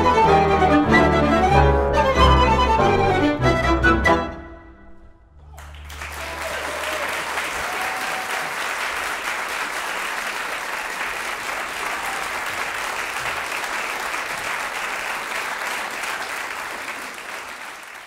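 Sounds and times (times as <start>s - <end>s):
audience applauding: 5.5s - 18.0s.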